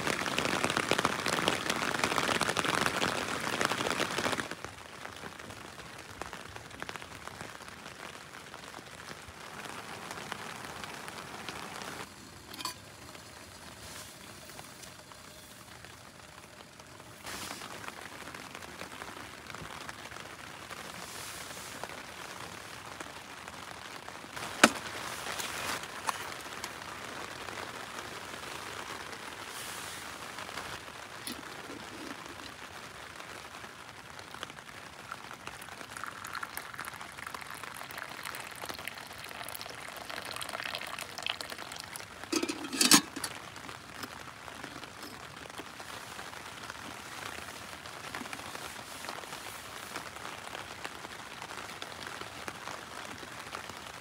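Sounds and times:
rain pattering on a tent: 0.0 - 54.0
tea pouring into a cup: 35.6 - 43.4.

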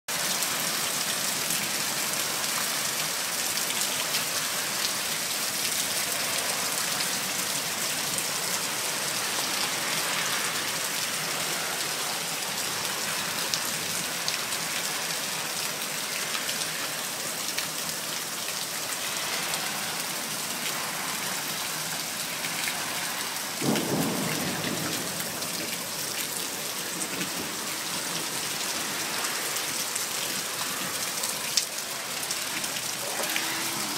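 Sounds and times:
heavy rain splashing on ground: 0.1 - 33.9.

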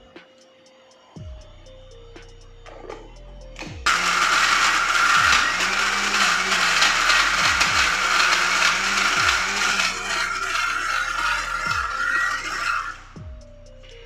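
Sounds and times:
mixer grinder whirring: 3.8 - 13.3.

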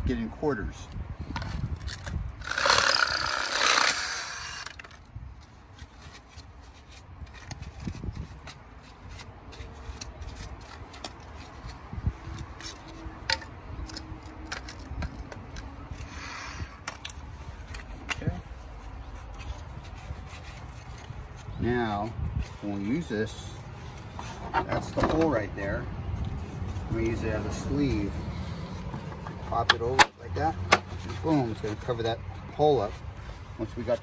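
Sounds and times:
reciprocating saw cutting plastic: 2.4 - 5.0.

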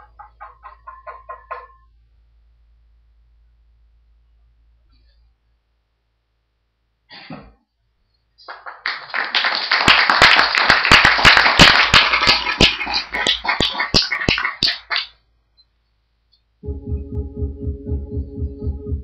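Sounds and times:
audience applauding: 8.4 - 15.1.

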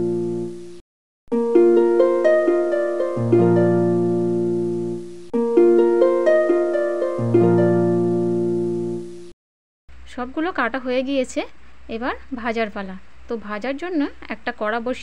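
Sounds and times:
plucked harp-like melody: 1.3 - 9.3.

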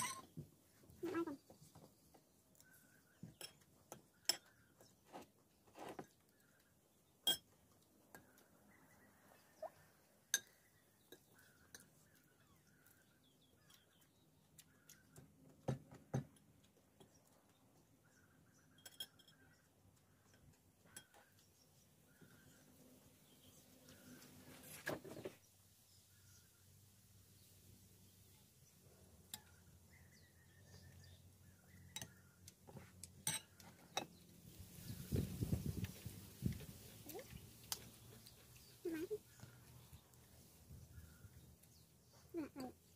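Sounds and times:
spoon clinking on glass bowl: 7.2 - 7.5, 18.8 - 19.5
small clicks of eating: 10.4 - 18.0, 31.7 - 34.4, 35.8 - 42.9
faint chewing: 10.5 - 15.6, 35.8 - 42.9.

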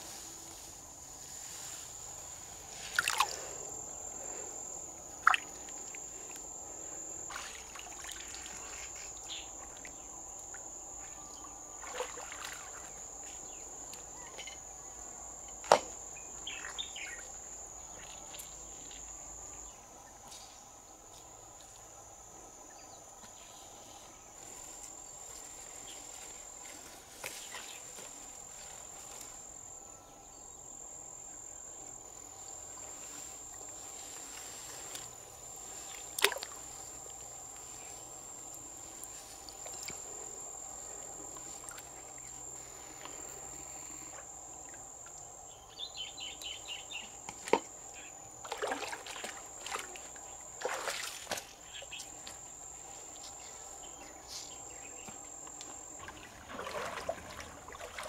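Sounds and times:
high-pitched insect drone: 2.4 - 20.6, 27.5 - 47.2
river water sloshing and trickling: 2.7 - 3.6, 5.1 - 6.4, 7.2 - 10.0, 11.0 - 13.5, 35.9 - 37.2, 41.0 - 42.2, 48.4 - 52.4, 55.8 - 58.0.

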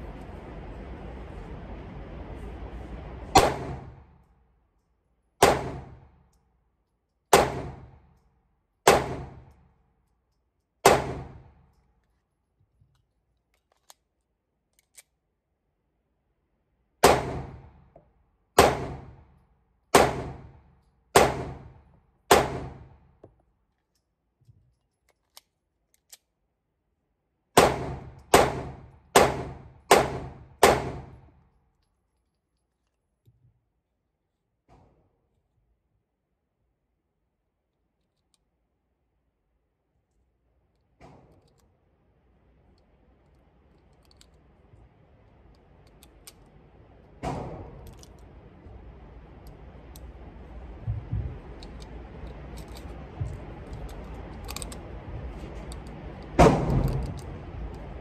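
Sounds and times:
pistol shots with echo: 3.4 - 4.0, 5.4 - 6.1, 7.3 - 8.0, 8.8 - 9.4, 10.8 - 11.5, 17.0 - 17.7, 18.6 - 19.2, 19.9 - 20.5, 21.2 - 22.9, 27.6 - 31.2, 56.4 - 57.0.

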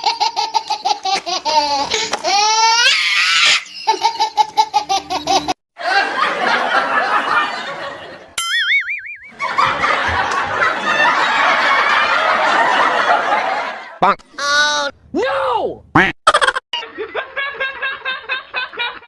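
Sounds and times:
fuller noisy laughter: 3.7 - 8.4, 9.3 - 14.0, 16.3 - 19.0
wobbling whistle sound effect: 8.4 - 9.5.

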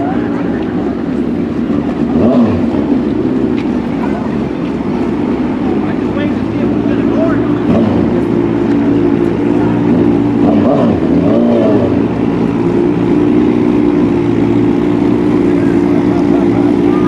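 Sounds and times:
motorcycle engines idling: 0.0 - 17.0.

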